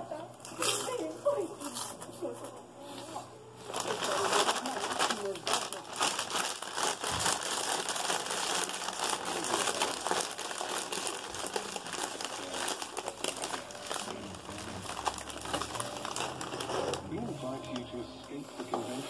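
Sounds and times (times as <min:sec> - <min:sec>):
plastic snack bag crinkling: 0:03.6 - 0:18.4.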